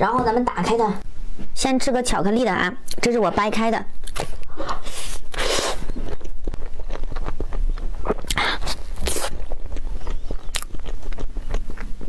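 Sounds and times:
mouth clicks: 4.0 - 12.0
chewing: 4.1 - 12.0
chocolate coating crackling: 5.2 - 12.0.

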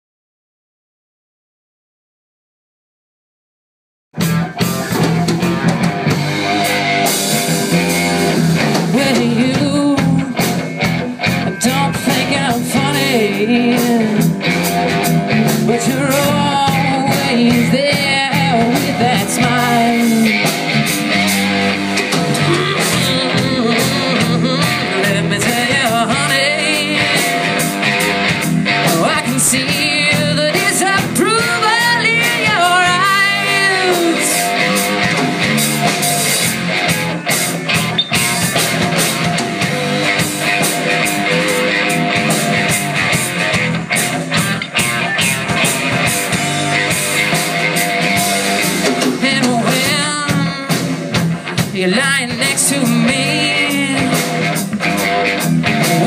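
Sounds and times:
blues-rock band playing: 4.2 - 56.0
electric guitar lead: 4.2 - 56.0.

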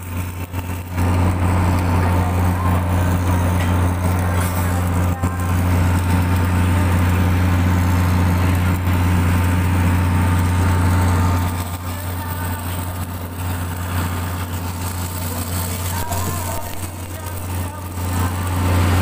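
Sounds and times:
construction machinery engine drone: 0.0 - 19.0.

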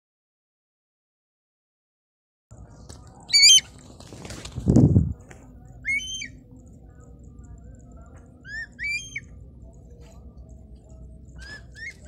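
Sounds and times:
low rumble: 2.5 - 12.0
hawk calling: 3.3 - 3.7, 5.8 - 6.4, 8.4 - 9.3, 11.4 - 12.0.

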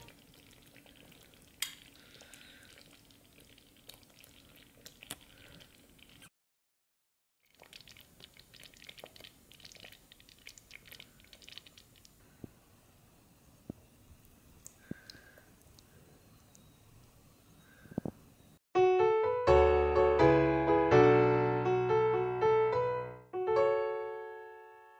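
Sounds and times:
curry bubbling in a pot: 0.0 - 6.3, 7.4 - 12.3.

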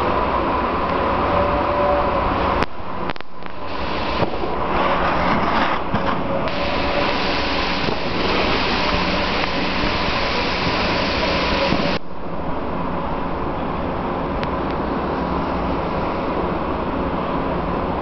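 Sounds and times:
indoor hall hum: 0.0 - 18.0
snowboard scraping over snow: 3.6 - 12.0.

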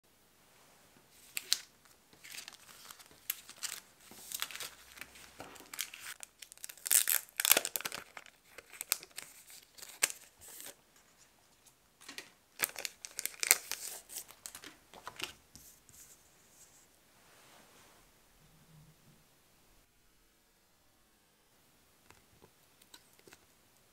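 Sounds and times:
plastic sleeves crinkling: 1.2 - 15.8.

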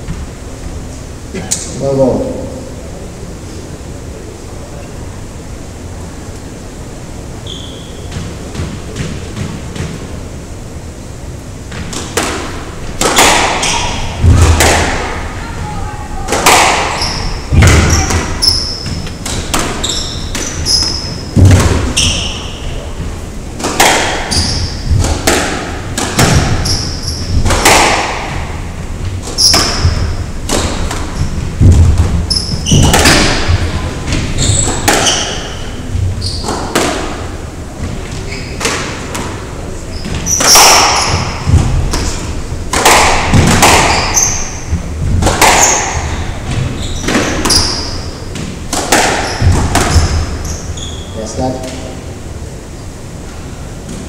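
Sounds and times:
shoes squeaking on hardwood floor: 7.4 - 9.6, 16.9 - 23.2, 24.3 - 25.0, 26.5 - 27.4, 29.2 - 30.2, 31.1 - 36.7, 37.8 - 38.7, 39.8 - 42.2, 43.6 - 44.9, 45.5 - 48.5, 49.2 - 51.3
squash ball hitting rackets and walls: 7.4 - 10.4, 11.6 - 52.0.

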